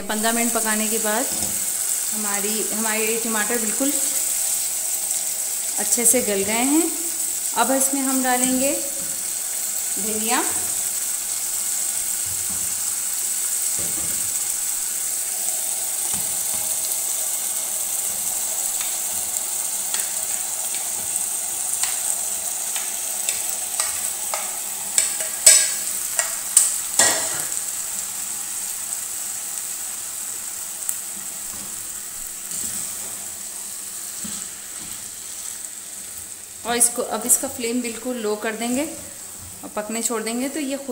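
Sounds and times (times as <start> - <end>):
sauce sizzling in a pot: 0.0 - 40.9
spatula scraping and tapping: 22.7 - 27.5.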